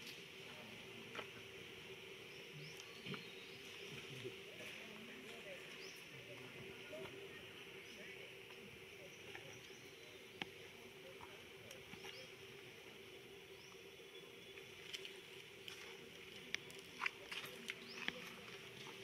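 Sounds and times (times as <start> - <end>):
faint hum and hiss: 0.0 - 19.0.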